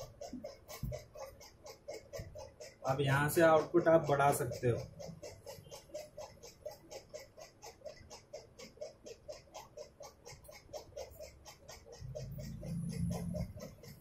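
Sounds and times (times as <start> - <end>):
electronic pulsing: 10.4 - 14.0.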